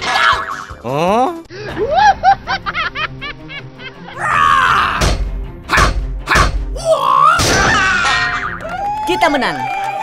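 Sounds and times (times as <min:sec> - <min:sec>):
background music: 0:00.0 - 0:10.0
cartoon thuds: 0:05.0 - 0:06.7, 0:07.4 - 0:08.0.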